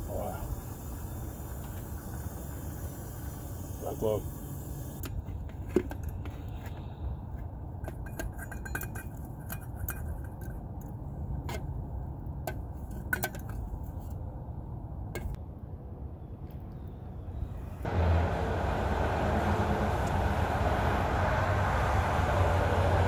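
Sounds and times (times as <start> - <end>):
metal pot clinks and scrapes: 7.8 - 10.6.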